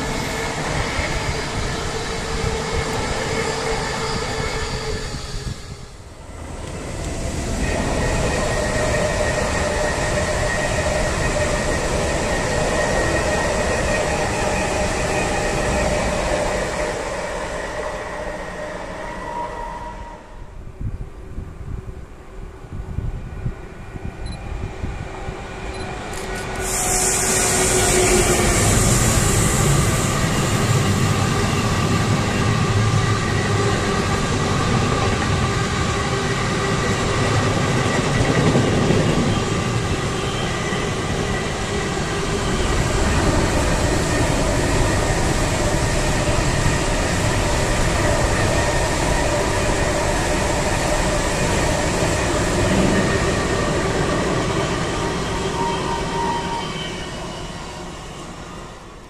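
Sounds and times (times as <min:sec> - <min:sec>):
train wheels rumbling on rail: 0:00.0 - 0:20.4, 0:22.5 - 0:59.0
high-speed train passing: 0:00.0 - 0:59.0
locomotive hiss: 0:26.0 - 0:31.5.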